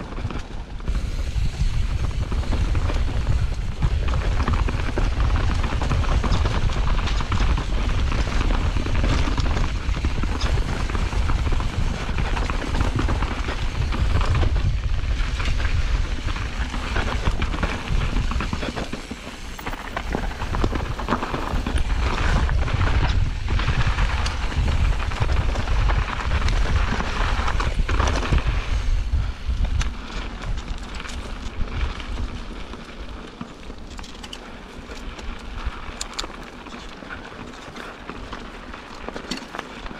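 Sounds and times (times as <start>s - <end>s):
bike clattering over rough ground: 0.0s - 39.9s
wind buffeting microphone: 0.0s - 39.9s.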